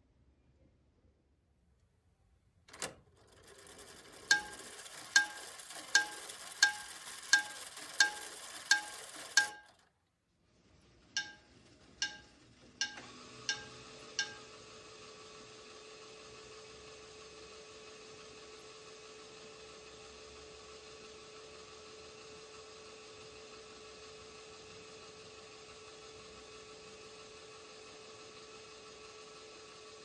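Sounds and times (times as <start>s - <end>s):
clock chime striking: 4.3s - 9.7s, 11.2s - 11.4s, 12.0s - 14.5s.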